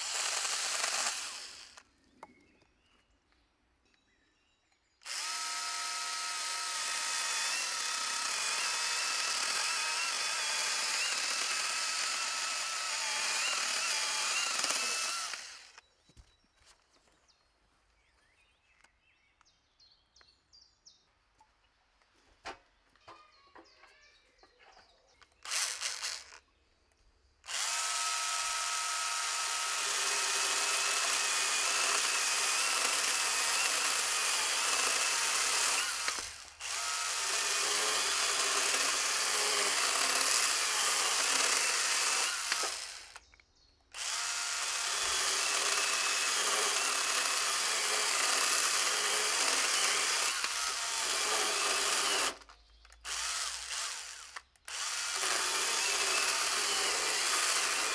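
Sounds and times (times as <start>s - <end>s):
chainsaw cutting through log: 0.0s - 1.9s, 5.0s - 15.8s, 25.4s - 26.4s, 27.5s - 43.3s, 43.9s - 57.9s.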